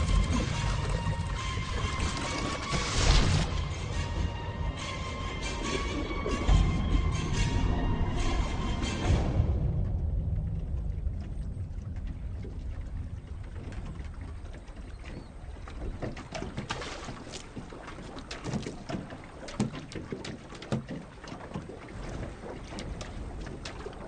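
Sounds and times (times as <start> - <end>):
sharp splashes: 0.0 - 4.2, 10.7 - 24.0
water splashing and sloshing: 0.0 - 24.0
low steady rumble: 3.3 - 15.7.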